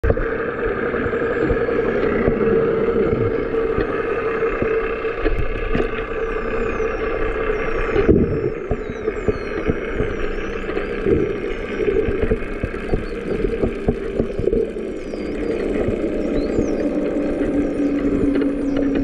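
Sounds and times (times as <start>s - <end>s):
boat engine drone underwater: 0.0s - 19.0s
whales whistling underwater: 0.1s - 19.0s
whale clicks: 0.8s - 19.0s.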